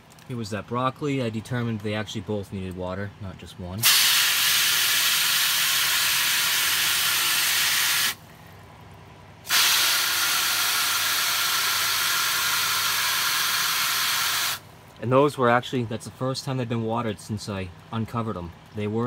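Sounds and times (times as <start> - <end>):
hose spraying water on plastic: 3.8 - 8.2, 9.5 - 14.6.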